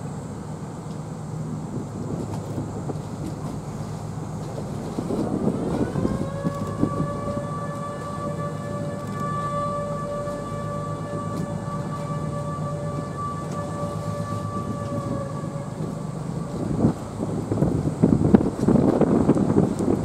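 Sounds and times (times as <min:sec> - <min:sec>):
low steady rumble: 0:00.0 - 0:20.0
ship's whistle: 0:04.9 - 0:18.4.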